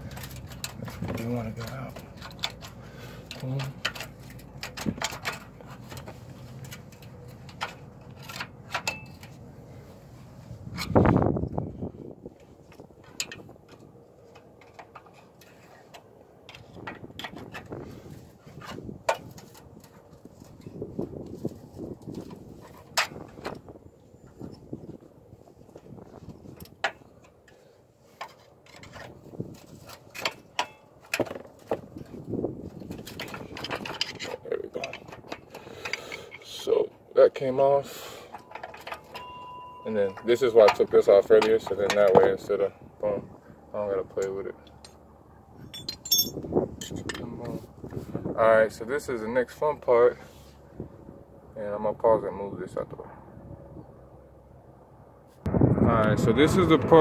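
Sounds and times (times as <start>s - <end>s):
metal clinks and scrapes: 0.0s - 9.4s, 26.0s - 36.6s, 38.2s - 42.4s, 45.6s - 48.1s.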